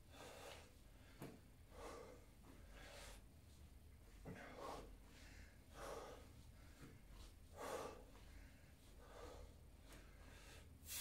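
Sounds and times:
man breathing under exertion: 4.3 - 11.0.

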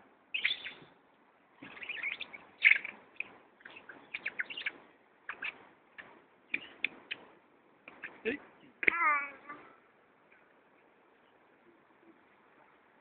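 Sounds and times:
birds chirping: 0.3 - 1.0, 1.6 - 8.8.

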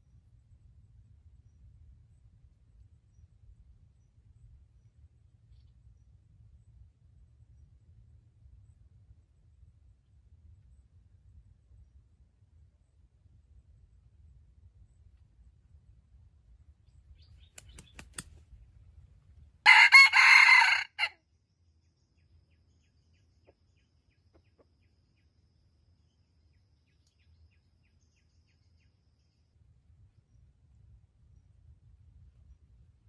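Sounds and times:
rooster crowing: 19.6 - 21.2.

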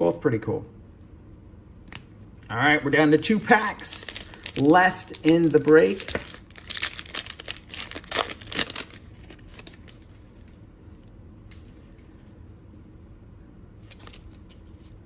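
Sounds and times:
cards rustling: 3.0 - 10.6, 13.8 - 15.0
plastic wrapper tearing and crinkling: 3.1 - 10.6, 13.8 - 15.0.

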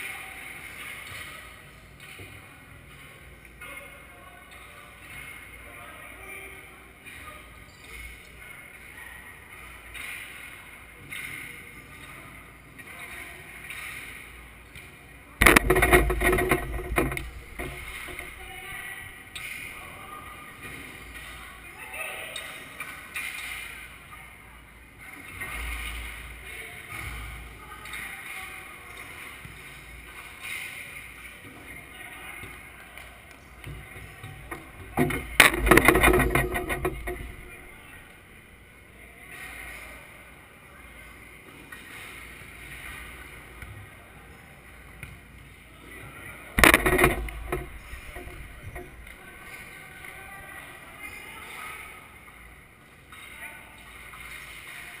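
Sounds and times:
loud ball hits with rattle: 15.4 - 18.6, 34.4 - 37.9, 46.6 - 49.6.

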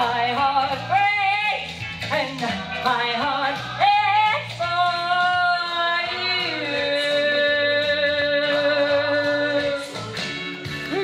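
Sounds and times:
karaoke backing track: 0.0 - 11.0.

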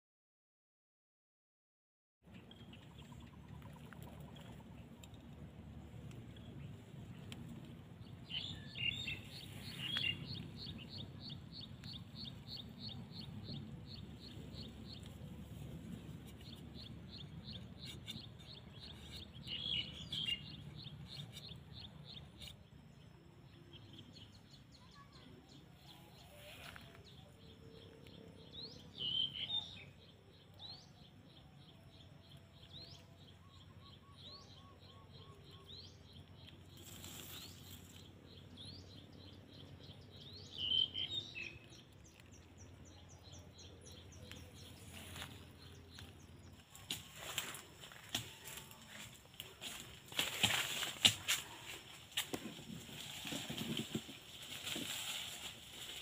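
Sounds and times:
birds chirping: 2.3 - 56.0
faint low rumble: 2.3 - 56.0.

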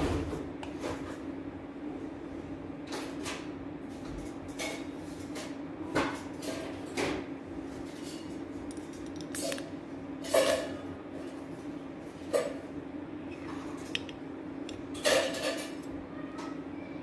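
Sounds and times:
steady low hum: 7.2 - 17.0.

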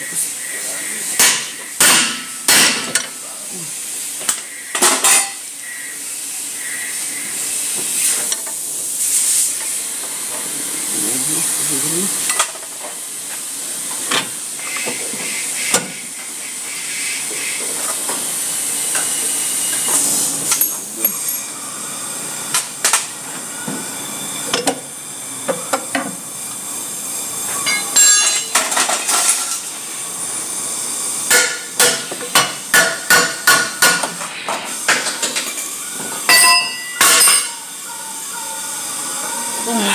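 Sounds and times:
steady hiss: 0.0 - 22.8
sharp metal strikes: 1.2 - 3.0.

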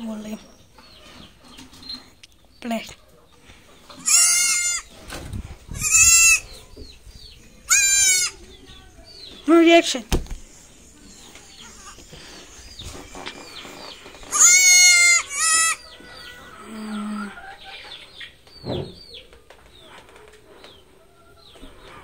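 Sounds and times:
goat bleating: 4.0 - 4.9, 5.7 - 6.6, 7.7 - 8.5, 11.6 - 12.1, 14.2 - 15.8
high chirping calls: 5.6 - 19.4.

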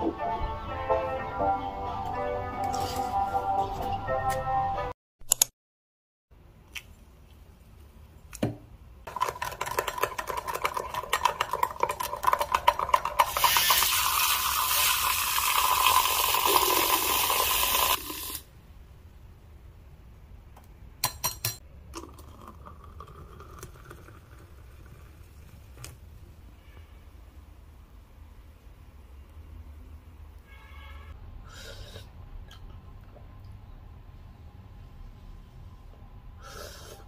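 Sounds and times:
electric milk frother whirring: 13.1 - 18.4
glassware clinking: 21.0 - 21.6.

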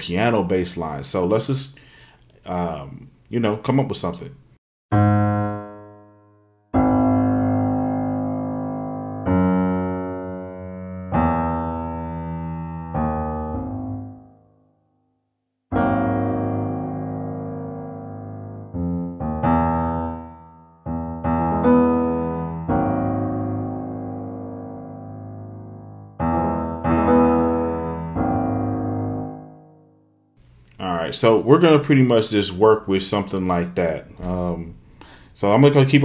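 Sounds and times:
low piano bass line: 4.9 - 14.8, 15.7 - 30.2.

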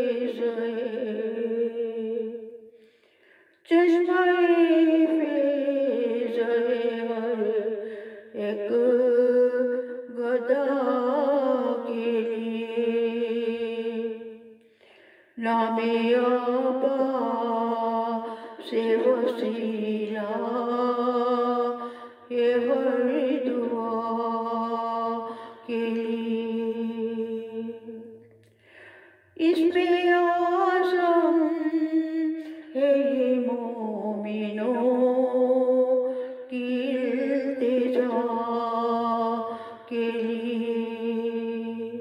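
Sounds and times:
woman chanting unaccompanied: 0.0 - 2.6, 3.7 - 14.4, 15.4 - 28.2, 29.4 - 42.0.

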